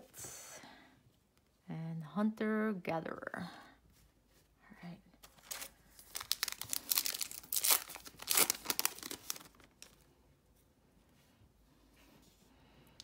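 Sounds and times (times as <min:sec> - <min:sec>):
foil wrapper tearing and crinkling: 0:05.3 - 0:10.0.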